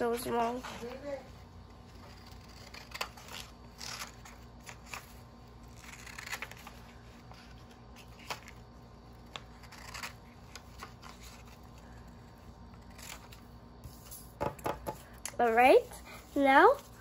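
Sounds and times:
scissors snipping paper: 0:01.8 - 0:07.4, 0:08.0 - 0:12.0.

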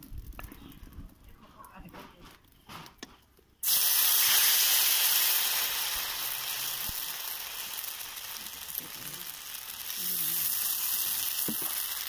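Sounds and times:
batter sizzling in hot pan: 0:03.6 - 0:12.0.

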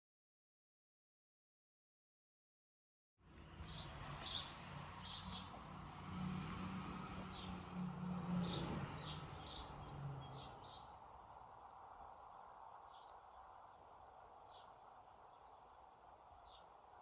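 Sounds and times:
outdoor background noise: 0:03.2 - 0:17.0
birds chirping: 0:03.5 - 0:17.0.

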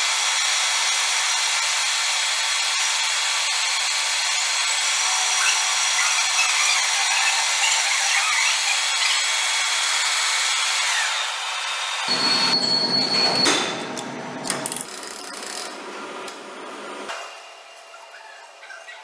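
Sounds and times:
metal lathe cutting hiss: 0:00.0 - 0:12.2.

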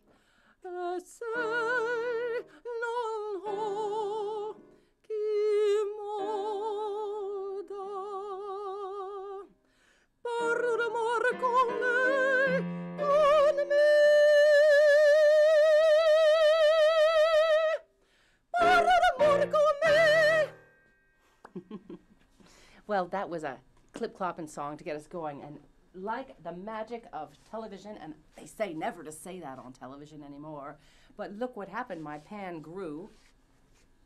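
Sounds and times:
woman singing opera: 0:00.6 - 0:09.6, 0:10.2 - 0:17.9, 0:18.6 - 0:20.6
keyboard accompaniment: 0:18.6 - 0:21.7.

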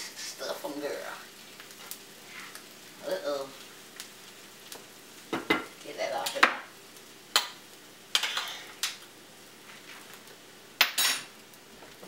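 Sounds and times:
kitchen utensils clinking: 0:10.8 - 0:11.3.

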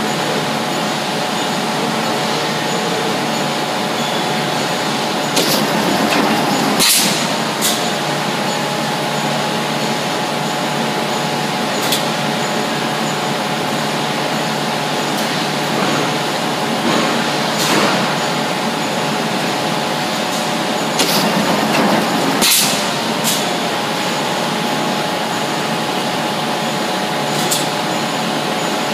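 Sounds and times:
machinery humming: 0:02.2 - 0:10.4, 0:19.7 - 0:27.4
metallic clicks and clanks: 0:05.4 - 0:07.8, 0:21.0 - 0:23.4.

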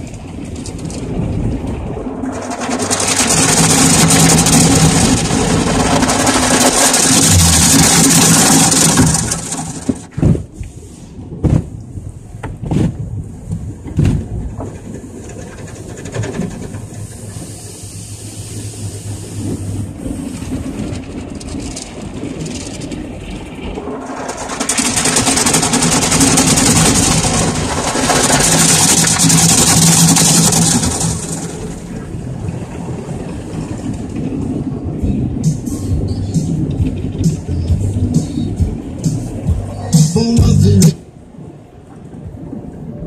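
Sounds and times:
water spray on car: 0:00.0 - 0:10.6, 0:23.8 - 0:32.9
car wash mechanical rumble: 0:00.0 - 0:43.0
wash brushes thumping car body: 0:02.3 - 0:10.6, 0:11.4 - 0:11.8.

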